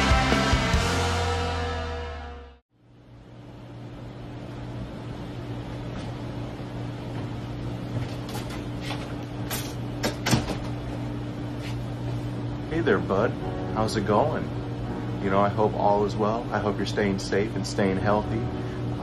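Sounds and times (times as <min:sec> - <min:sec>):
ventilation and machinery hum: 0:02.8 - 0:19.0.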